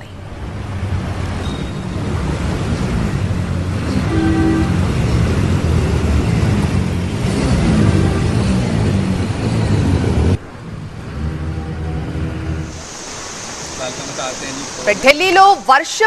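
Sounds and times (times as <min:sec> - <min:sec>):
vehicle engines humming: 0:00.0 - 0:16.0
rain and water wash: 0:00.2 - 0:08.0, 0:12.2 - 0:16.0.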